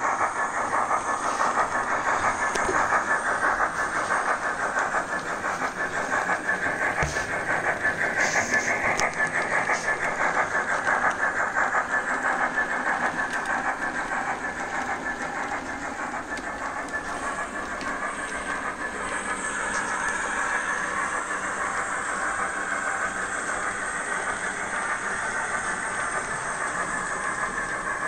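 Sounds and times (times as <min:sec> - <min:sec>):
model train running on track: 0:00.0 - 0:28.0.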